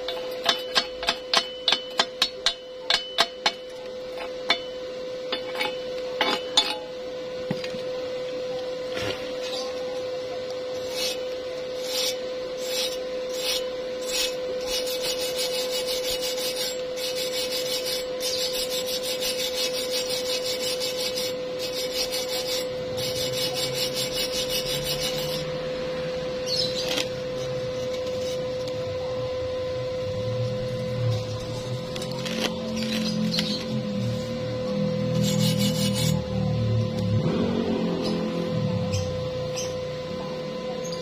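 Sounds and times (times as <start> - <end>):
wire brush scrubbing metal: 0.0 - 6.9, 9.1 - 25.6, 26.5 - 28.9, 30.4 - 37.1.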